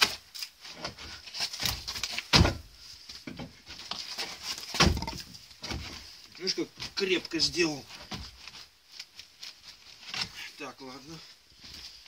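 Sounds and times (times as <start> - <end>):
wood knocking and creaking: 0.7 - 6.1, 6.7 - 8.5
crowbar prying wooden boards: 0.8 - 3.6, 4.6 - 6.0.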